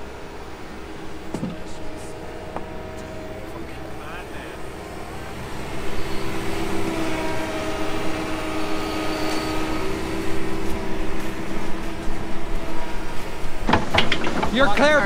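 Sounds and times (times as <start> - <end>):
excavator diesel engine: 0.0 - 15.0
hydraulic whine: 0.0 - 15.0.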